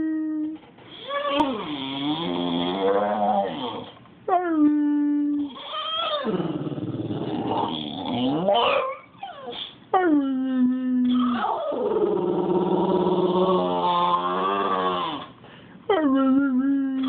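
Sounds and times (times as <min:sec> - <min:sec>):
dog howling: 0:07.3 - 0:09.6.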